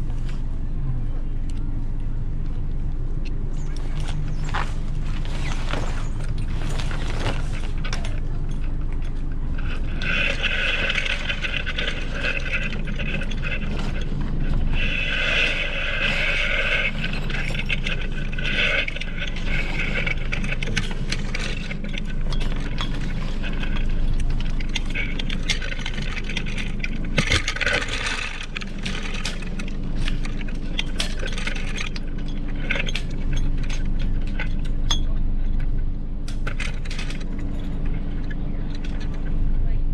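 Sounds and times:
steady low hum: 0.0 - 39.9
rasping: 3.7 - 34.6.

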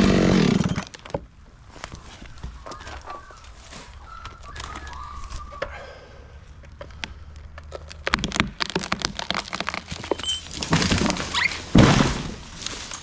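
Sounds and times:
tree trunk cracking: 7.3 - 13.0.

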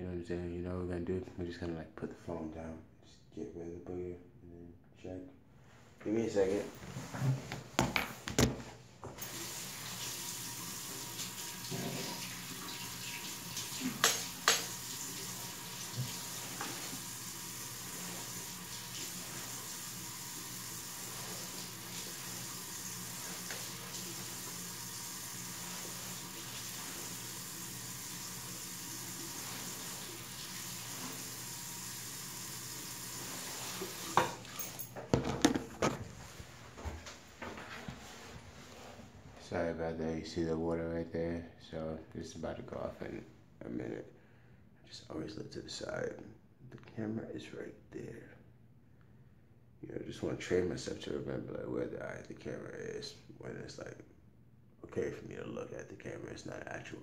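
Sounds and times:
water running from sink tap: 9.2 - 34.9.

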